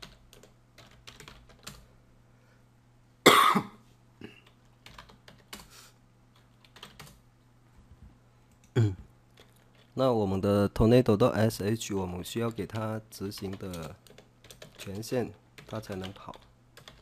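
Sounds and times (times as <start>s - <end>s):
keyboard typing: 0.0s - 1.9s, 4.4s - 5.7s, 6.3s - 7.2s, 13.3s - 17.0s
person coughing: 3.2s - 4.4s, 8.7s - 9.1s.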